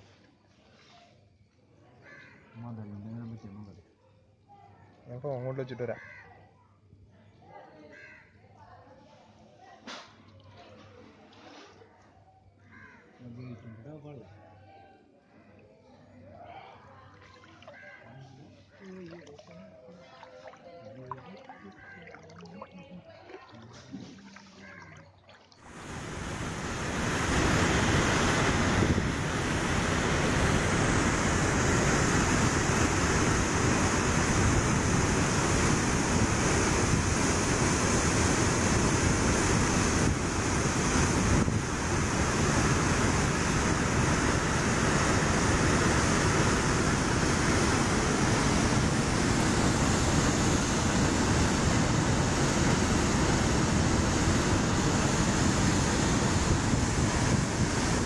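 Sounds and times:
water rushing from dam spillway: 25.6s - 58.0s.

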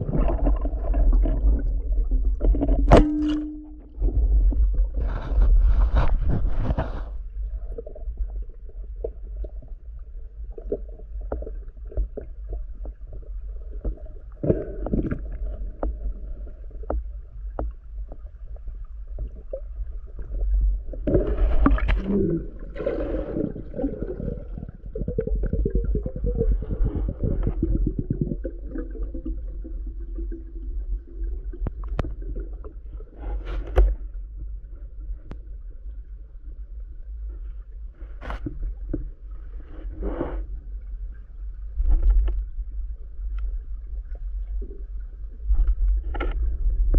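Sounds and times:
underwater rumble: 0.0s - 46.9s
sharp clicks underwater: 2.4s - 4.3s, 31.6s - 32.5s, 33.5s - 34.0s, 45.5s - 46.9s.

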